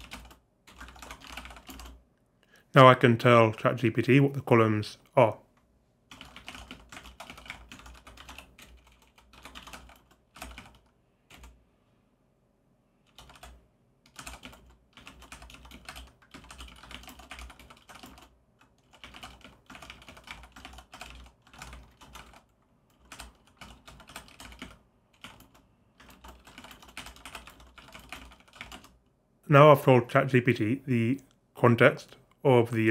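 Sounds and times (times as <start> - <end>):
typing on a computer keyboard: 0.0 - 2.0, 6.1 - 11.6, 13.0 - 29.0.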